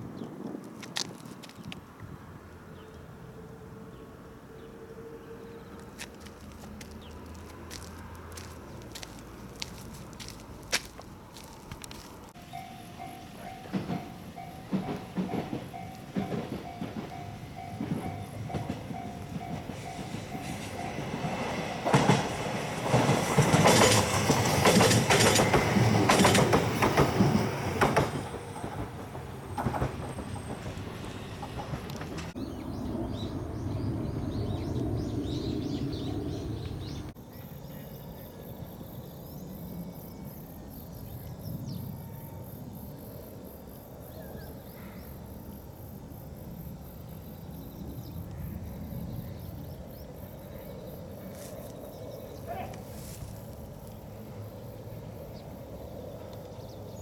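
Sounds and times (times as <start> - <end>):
train passing: 1.9 - 57.0
wheels clattering over rail joints: 6.4 - 32.4
level crossing warning bell: 12.4 - 21.8.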